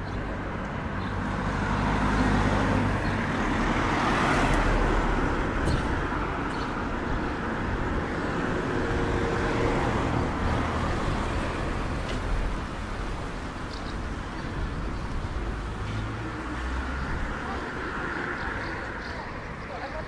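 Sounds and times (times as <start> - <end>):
car engines: 0.0 - 20.0
tyres on the street: 0.0 - 20.0.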